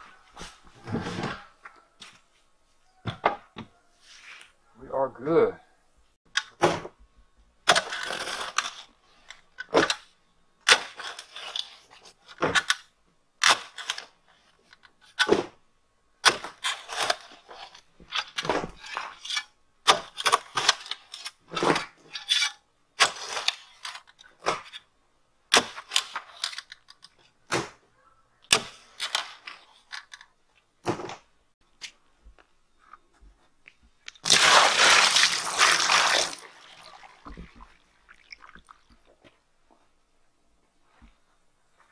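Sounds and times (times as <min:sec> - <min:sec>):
digger scraping and knocking soil: 0:07.7 - 0:10.0, 0:10.6 - 0:12.7, 0:16.2 - 0:24.9, 0:34.1 - 0:37.7
water pouring into hole: 0:34.2 - 0:38.9.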